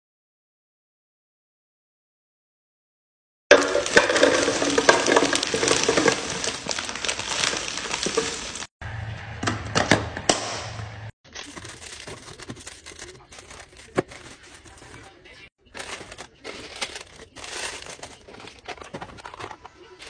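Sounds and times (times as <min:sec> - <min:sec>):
candies clattering into plastic canister: 0:03.5 - 0:08.4, 0:11.3 - 0:20.0
wrapper crinkling: 0:03.7 - 0:08.7, 0:11.3 - 0:20.0
low hum: 0:08.8 - 0:11.1.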